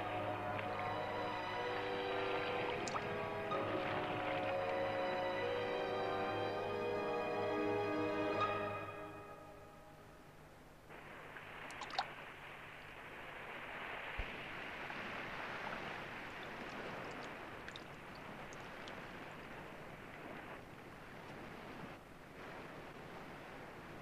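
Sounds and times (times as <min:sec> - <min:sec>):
water lapping and washing: 0:00.0 - 0:07.0, 0:10.7 - 0:24.0.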